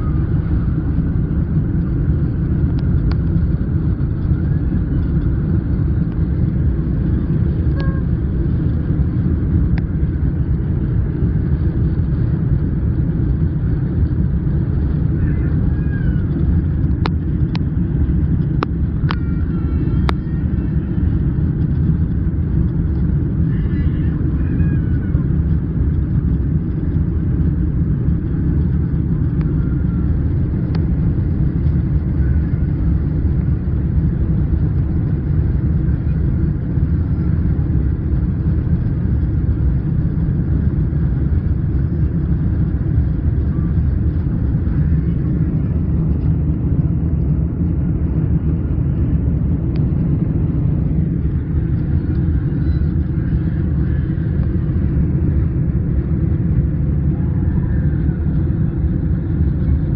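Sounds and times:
jet engines rumbling in cabin: 0.0s - 59.9s
rushing air: 40.1s - 57.4s.

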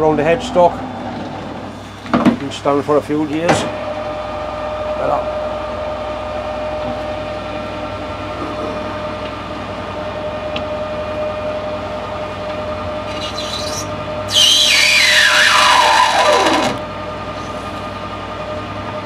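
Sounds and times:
lathe tool cutting squeal: 13.0s - 16.8s
metal lathe whining: 13.0s - 17.6s.

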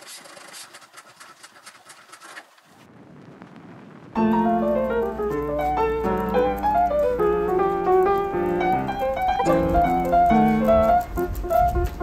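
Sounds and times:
faint rustling and clicking: 4.2s - 12.0s
piano background music: 4.2s - 12.0s.

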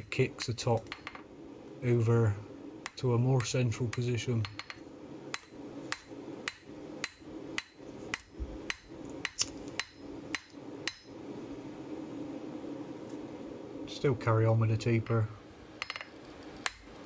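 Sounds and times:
hammer striking hot steel on anvil: 2.8s - 11.2s, 15.8s - 17.0s.

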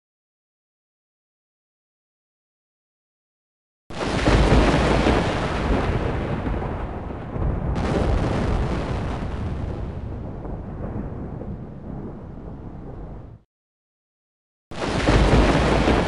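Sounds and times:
thunder crack rolling: 3.9s - 13.4s, 14.7s - 16.0s.

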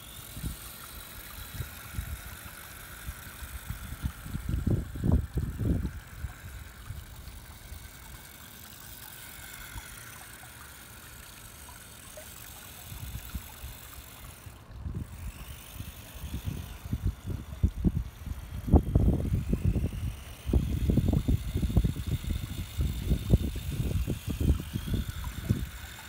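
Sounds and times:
faint steady hum: 0.0s - 26.0s
light water movement: 0.0s - 26.0s
wind rumbling on microphone: 3.0s - 8.2s, 14.7s - 26.0s.

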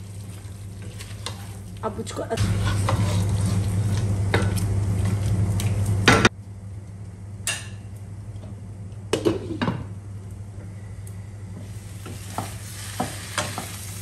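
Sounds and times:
chicken sizzling in a pot: 0.0s - 4.8s, 11.5s - 14.0s.

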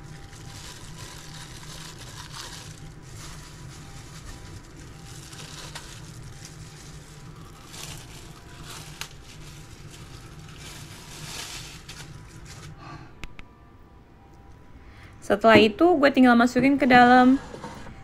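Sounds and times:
plastic crinkling and rustling: 0.0s - 12.8s
steady low hum: 0.0s - 18.0s.

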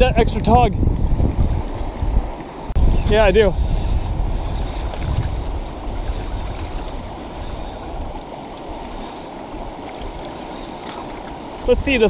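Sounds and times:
deep rumble: 0.0s - 8.2s
river rushing over riffles: 1.0s - 12.0s.

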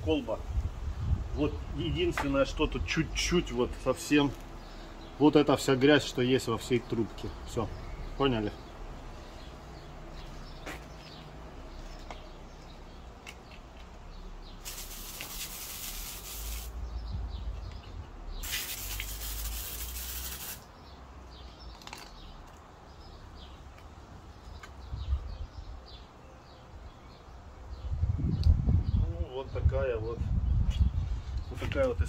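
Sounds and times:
birds chirping faintly: 0.0s - 32.0s
hissing bursts: 14.6s - 16.9s, 18.4s - 20.7s.

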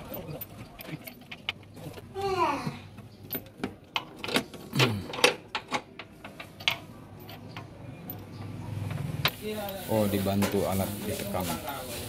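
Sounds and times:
metallic clinks of bolts and wrench: 0.0s - 2.0s, 3.2s - 8.4s.

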